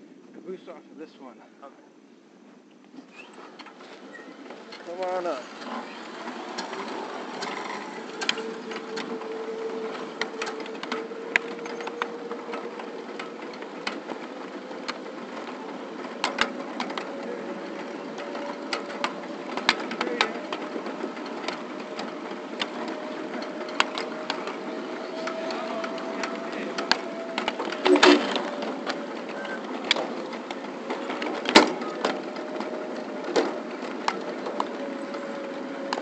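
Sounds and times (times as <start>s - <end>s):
faint whine: 0.0s - 36.0s
small train rolling: 0.0s - 36.0s
wheels clicking on track: 2.9s - 36.0s.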